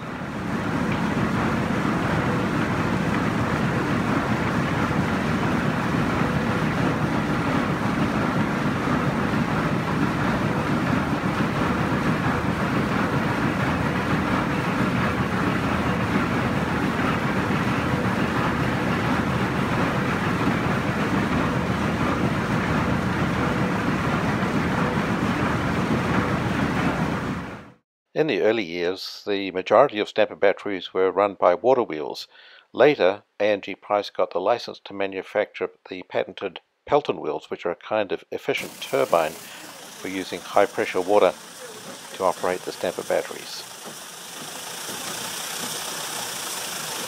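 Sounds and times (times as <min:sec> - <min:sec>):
machinery rumbling: 0:00.1 - 0:27.6, 0:38.6 - 0:47.0.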